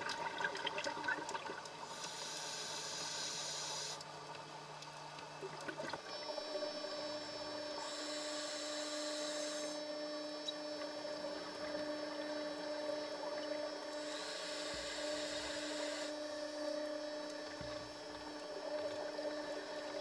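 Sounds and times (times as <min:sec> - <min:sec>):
low underwater hum: 0:00.0 - 0:20.0
scuba regulator hiss: 0:01.9 - 0:04.0, 0:07.8 - 0:09.8, 0:14.0 - 0:16.1.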